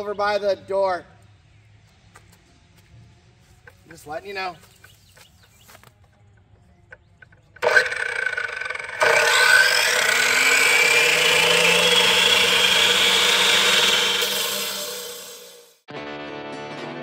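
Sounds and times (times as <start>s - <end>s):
power saw whining: 7.6s - 15.8s.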